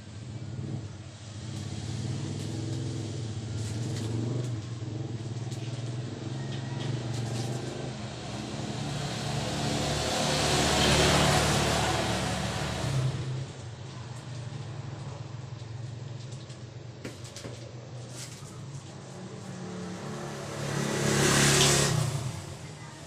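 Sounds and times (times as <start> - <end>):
vehicle passing rush: 0.0 - 16.8, 17.9 - 23.0
vehicle engine running: 0.0 - 23.0.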